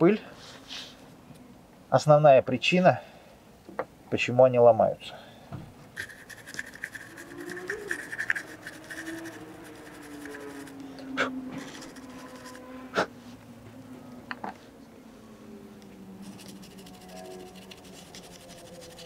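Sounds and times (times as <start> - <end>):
toothbrush scrubbing plastic: 6.0 - 10.8, 11.6 - 12.7, 16.2 - 19.0.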